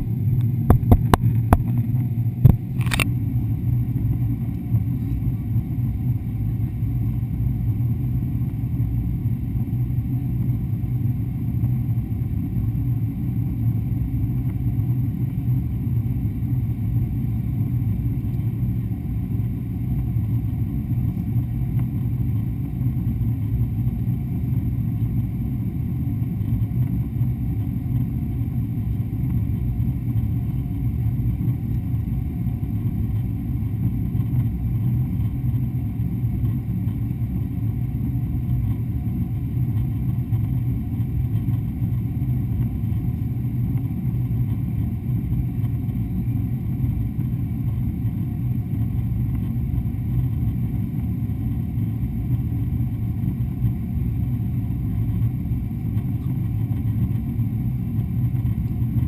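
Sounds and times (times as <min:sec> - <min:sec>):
airplane cabin rumble: 0:00.0 - 0:59.0.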